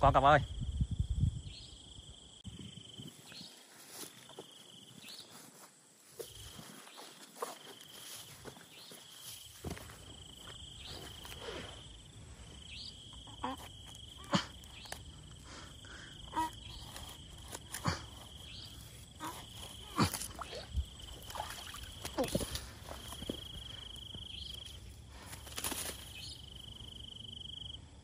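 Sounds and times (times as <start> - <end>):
night insect trilling: 0.4 - 28.0
footsteps and rustles in grass: 2.7 - 12.6, 16.4 - 26.8.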